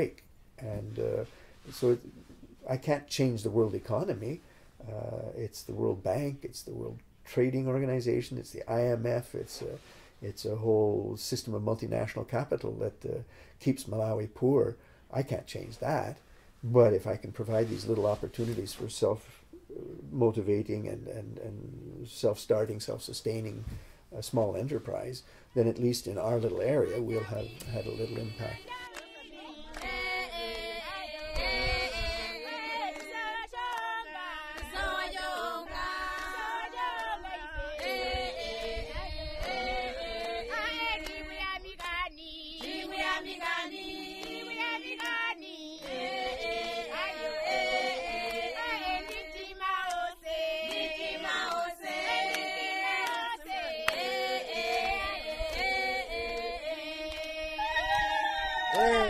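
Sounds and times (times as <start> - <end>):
group singing: 26.6 - 59.0.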